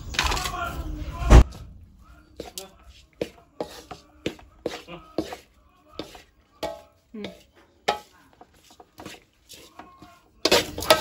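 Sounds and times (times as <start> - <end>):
spatula scraping metal wok: 2.3 - 11.0.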